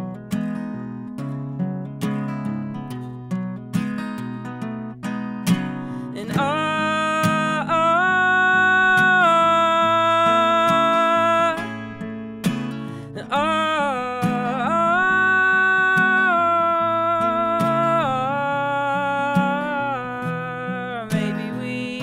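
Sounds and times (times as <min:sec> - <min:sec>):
strummed acoustic guitar: 0:00.0 - 0:22.0
man singing long held notes: 0:06.1 - 0:12.0, 0:13.2 - 0:22.0.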